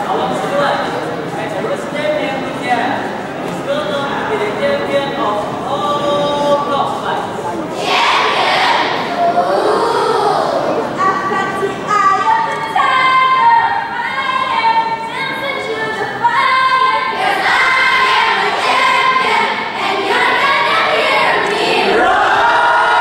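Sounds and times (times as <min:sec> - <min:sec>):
choir singing in unison: 0:07.8 - 0:10.6, 0:17.0 - 0:23.0.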